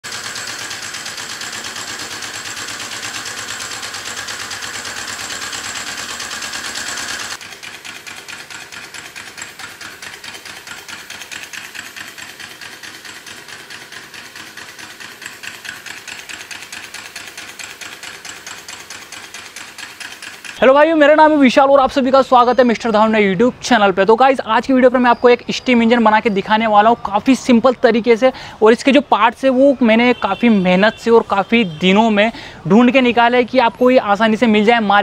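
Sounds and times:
steam engine chuffing: 0.0 - 20.6.

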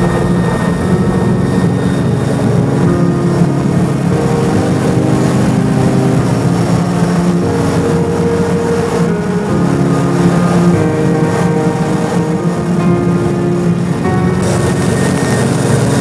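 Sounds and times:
music of held chords: 0.0 - 16.0
helicopter engines and rotor: 13.9 - 16.0.

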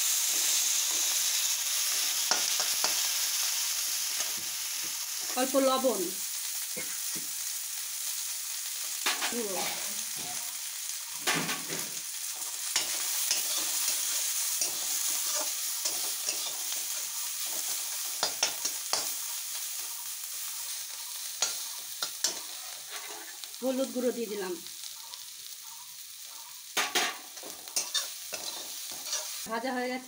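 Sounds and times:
vegetables sizzling in oil: 0.0 - 30.0
spatula scraping a pan: 11.2 - 19.2, 21.0 - 23.5, 26.8 - 29.4.

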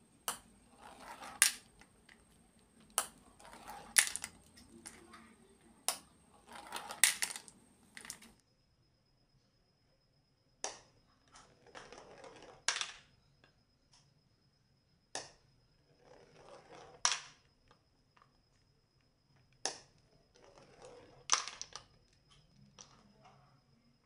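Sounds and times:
marble rolling down plastic spiral: 0.0 - 8.4, 11.3 - 13.1, 15.9 - 17.5, 19.7 - 22.1
marble clicking onto plastic slide: 0.2 - 8.3, 16.2 - 17.4, 19.6 - 22.0
marble dropping into plastic toy truck: 0.2 - 8.4, 11.4 - 13.1, 16.4 - 17.5, 19.6 - 22.0.

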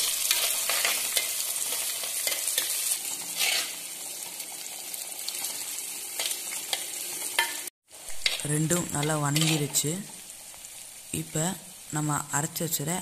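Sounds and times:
shallots sizzling in hot oil: 0.0 - 13.0
steel ladle scraping a pot: 0.3 - 3.8, 9.4 - 9.7.

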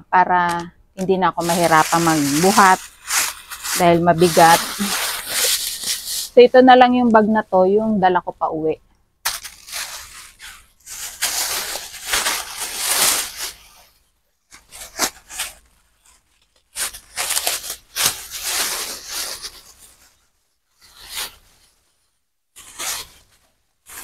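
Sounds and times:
plastic bag rustling: 0.3 - 8.2, 9.3 - 20.2.

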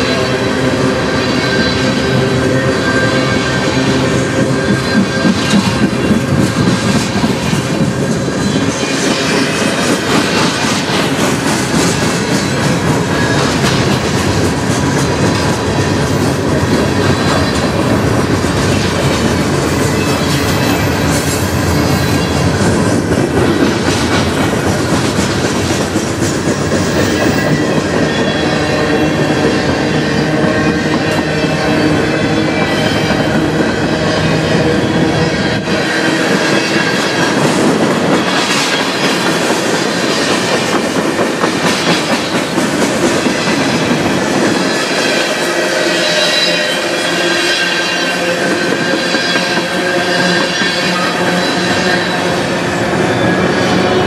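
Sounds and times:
train wheels rumbling on rails: 0.0 - 54.0
wheels squealing: 43.4 - 54.0.

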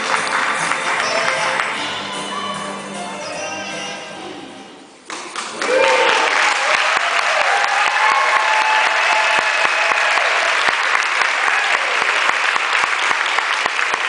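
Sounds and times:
audience applauding: 0.0 - 1.9, 5.1 - 14.0.

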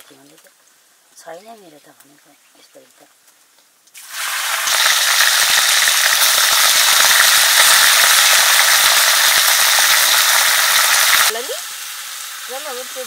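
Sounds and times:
meat frying in hot oil: 3.9 - 13.0.

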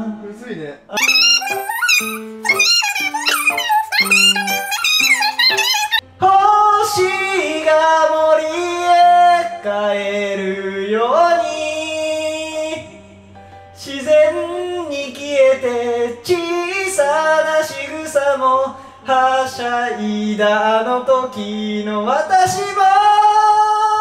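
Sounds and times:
man singing a slow ballad: 6.0 - 24.0.

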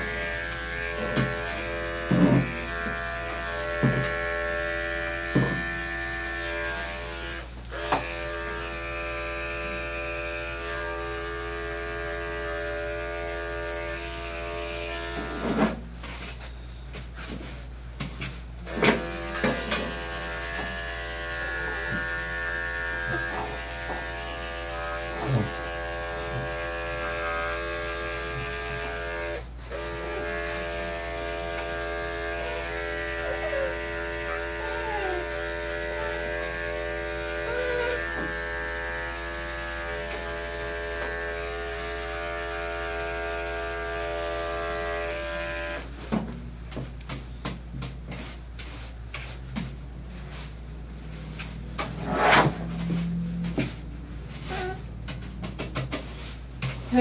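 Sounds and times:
electric clippers buzzing: 0.0 - 15.8, 18.6 - 45.9.

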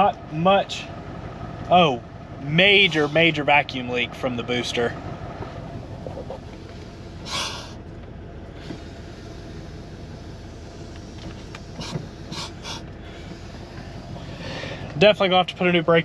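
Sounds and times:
engine idling: 0.0 - 16.0
brake vacuum hisses: 2.6 - 3.8, 5.8 - 16.0.

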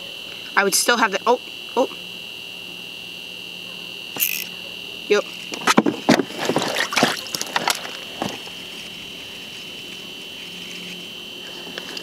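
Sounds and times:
high-pitched whine: 0.4 - 5.8
fishing rod and reel handled: 4.2 - 4.5.

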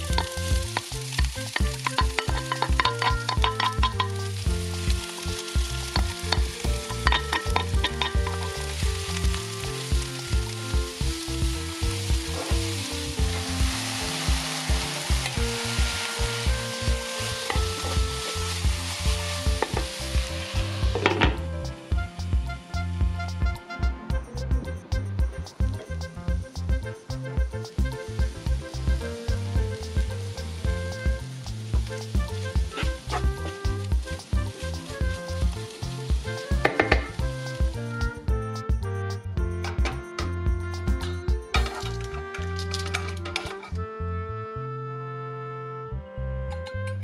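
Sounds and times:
wooden spoon scraping a pan: 0.0 - 10.6, 11.9 - 21.4
vegetables sizzling in oil: 0.0 - 23.4, 25.4 - 37.8.

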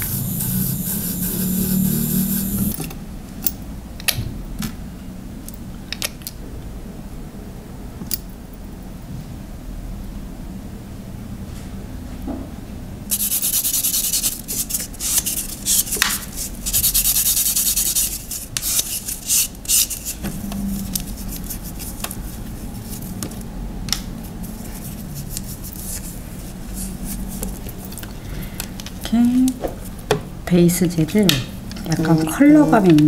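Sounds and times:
fingernail being sanded: 0.0 - 2.7, 13.1 - 20.2.

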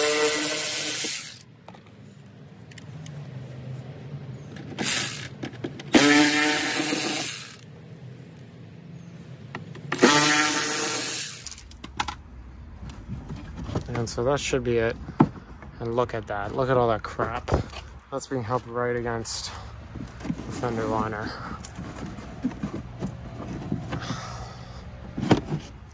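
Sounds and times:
electric ratchet whining: 0.0 - 1.5, 4.7 - 7.7, 9.9 - 11.8.

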